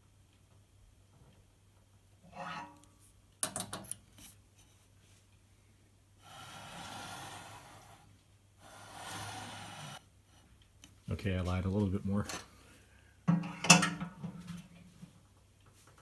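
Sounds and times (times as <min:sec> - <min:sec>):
smooth hissing sounds: 0:06.2 - 0:10.1.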